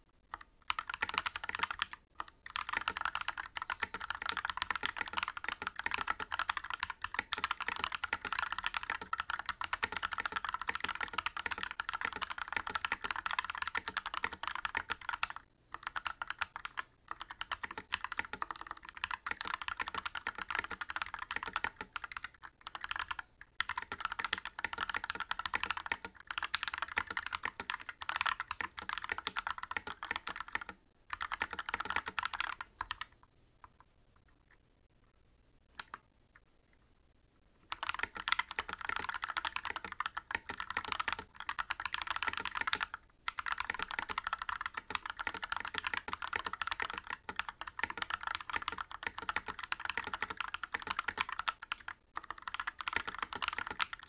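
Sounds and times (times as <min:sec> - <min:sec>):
mechanical keyboard typing: 0:00.3 - 0:33.8, 0:35.8 - 0:36.0, 0:37.7 - 0:54.0.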